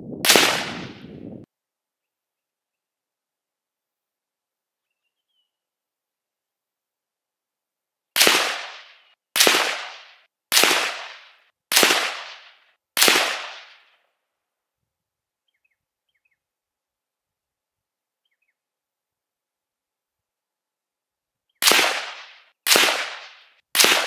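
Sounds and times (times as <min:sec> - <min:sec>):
rifle shots: 0:00.2 - 0:01.1, 0:08.2 - 0:13.9, 0:21.6 - 0:24.0
faint bird chirps: 0:04.7 - 0:05.8, 0:15.4 - 0:16.6, 0:18.1 - 0:18.8.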